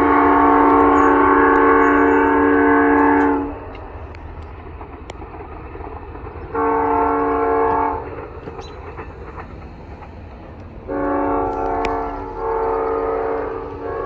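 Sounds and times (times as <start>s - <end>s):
locomotive air horn blast: 0.0s - 3.7s, 6.6s - 8.1s, 10.9s - 14.0s
low rumble of train: 0.0s - 14.0s.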